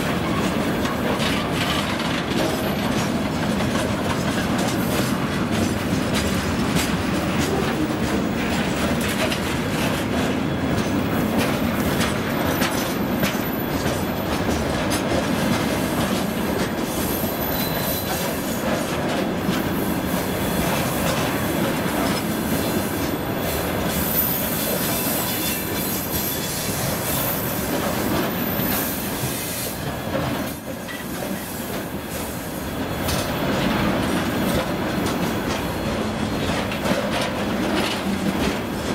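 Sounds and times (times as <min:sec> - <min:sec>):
train wheels rumbling on rails: 0:00.0 - 0:38.9
high-pitched wheel squeal: 0:17.1 - 0:18.2.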